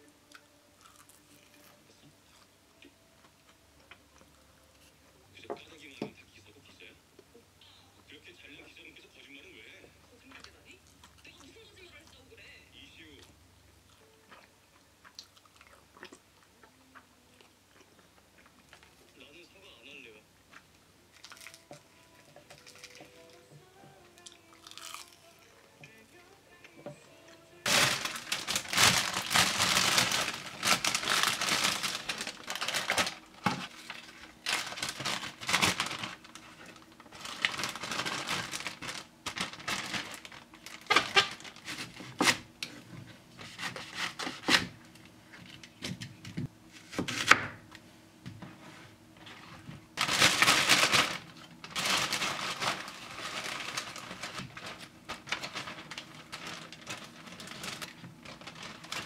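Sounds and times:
plastic bag crinkling: 0:21.1 - 0:23.4, 0:27.6 - 0:42.5, 0:49.4 - 0:59.0.

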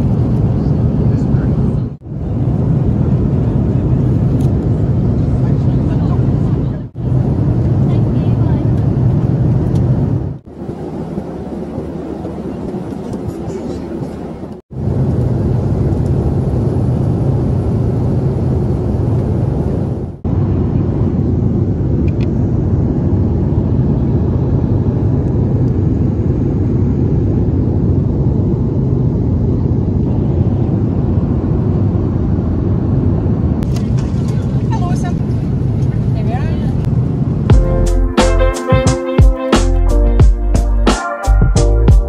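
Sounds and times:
airliner cabin noise: 0:00.0 - 0:37.8.

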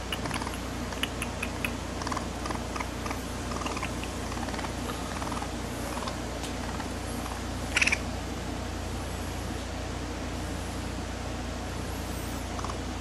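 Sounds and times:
raccoon paws clicking and scratching: 0:00.0 - 0:06.6
steady low hum: 0:00.0 - 0:13.0.

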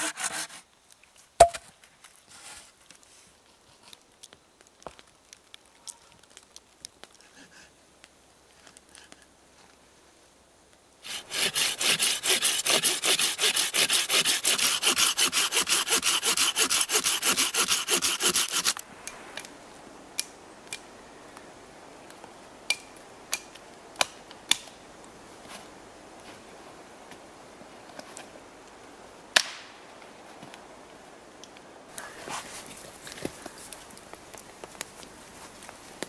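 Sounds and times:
hand saw cutting wood: 0:00.0 - 0:00.6, 0:11.0 - 0:18.8.

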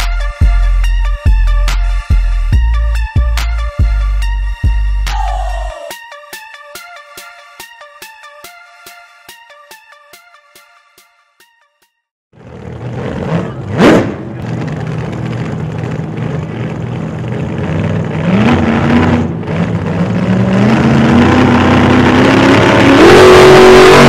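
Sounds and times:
vehicle engine accelerating: 0:12.4 - 0:24.0.

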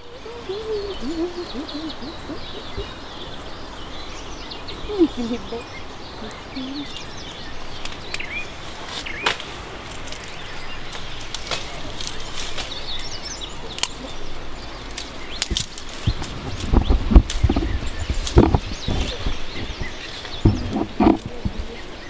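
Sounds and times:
birds chirping: 0:00.0 - 0:22.0
twigs snapping: 0:07.8 - 0:21.7.

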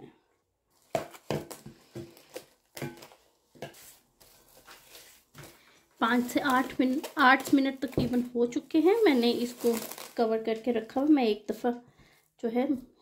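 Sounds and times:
cling film crinkling: 0:04.1 - 0:11.1.

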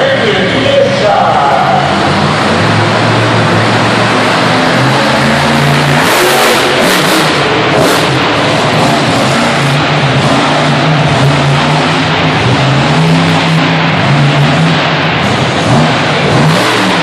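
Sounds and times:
monster truck engine revving: 0:00.0 - 0:17.0.

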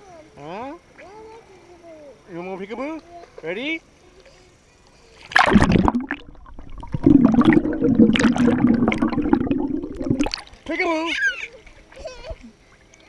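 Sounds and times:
underwater sloshing and gurgling: 0:05.2 - 0:10.7
pool water splashing: 0:05.2 - 0:13.0.

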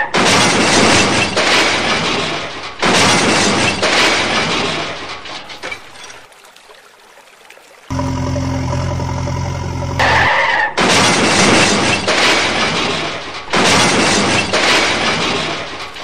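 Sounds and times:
engine-like hum: 0:07.9 - 0:10.5
toys crashing and splashing into water: 0:10.8 - 0:16.0.

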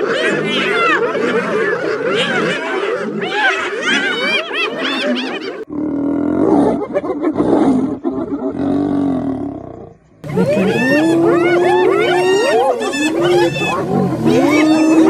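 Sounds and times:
hyenas giggling and yelping: 0:00.0 - 0:05.7, 0:06.6 - 0:08.6, 0:10.2 - 0:15.0
lioness snarling growls: 0:05.7 - 0:15.0.

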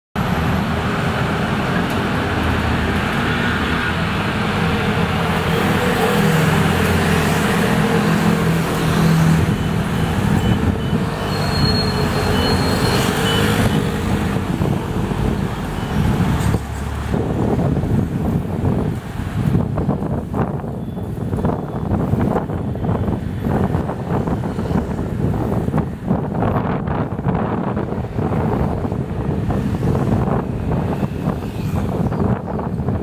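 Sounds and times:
bus pulling away: 0:00.2 - 0:19.8
street traffic: 0:00.2 - 0:33.0.

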